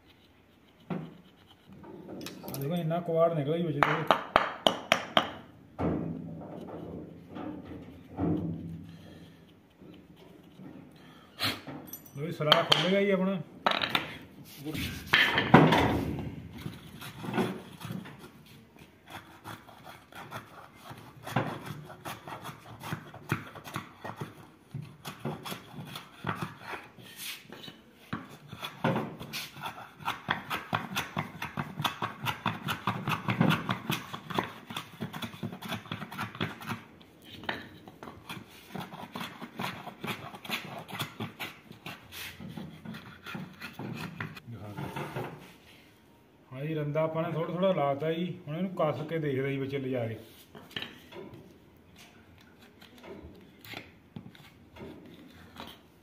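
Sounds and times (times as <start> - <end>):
hand plane scraping wood: 16.6 - 27.6, 28.2 - 37.4, 38.0 - 44.8.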